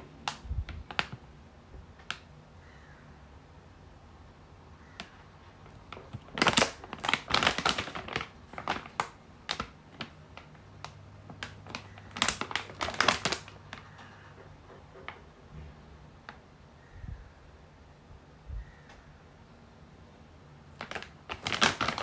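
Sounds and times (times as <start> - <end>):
plastic pouch crinkling: 0.2 - 1.2, 5.0 - 14.2, 20.7 - 22.0.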